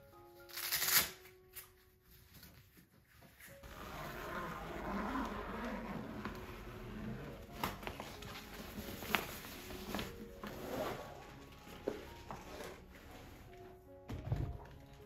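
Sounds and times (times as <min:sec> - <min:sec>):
cloth bag rustling: 0:03.4 - 0:13.8.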